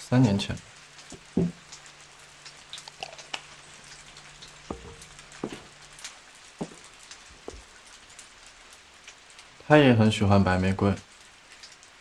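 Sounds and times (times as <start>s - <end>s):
rain patter: 0.0s - 12.0s
soft knocks: 1.1s - 1.6s, 4.7s - 5.7s.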